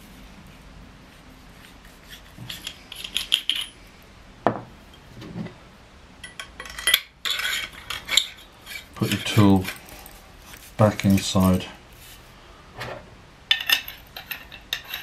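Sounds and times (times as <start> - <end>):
metal tubes clinking: 2.4 - 3.8, 6.2 - 10.2, 13.5 - 15.0
firm knocks: 4.4 - 4.7.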